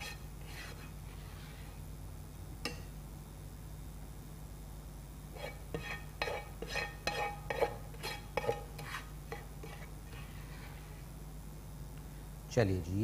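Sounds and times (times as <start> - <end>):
spatula scraping ceramic bowl: 0.0 - 1.8, 5.3 - 11.0.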